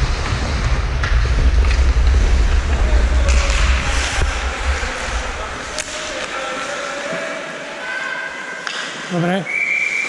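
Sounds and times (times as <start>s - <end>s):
wind buffeting microphone: 0.0s - 6.4s.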